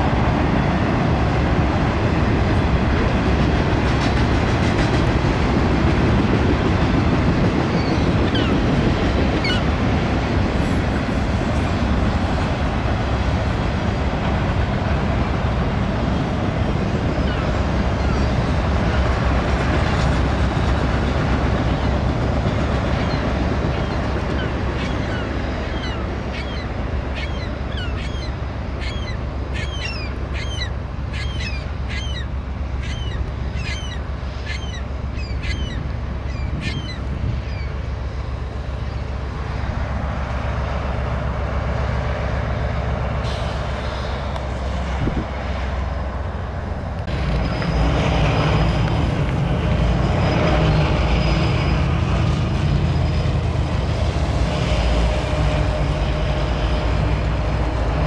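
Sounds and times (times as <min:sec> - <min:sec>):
diesel locomotive engine: 0:00.0 - 0:58.0
freight train rumbling: 0:00.0 - 0:58.0
high bird calls: 0:22.9 - 0:37.8.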